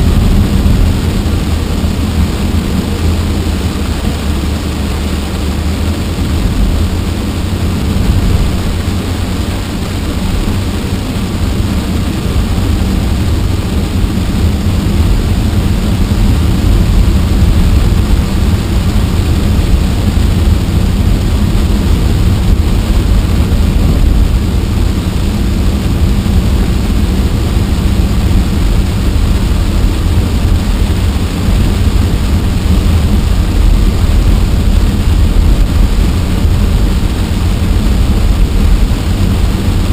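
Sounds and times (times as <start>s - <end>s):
rain hissing on car glass: 0.0s - 39.9s
road and engine rumble inside car: 0.0s - 39.9s.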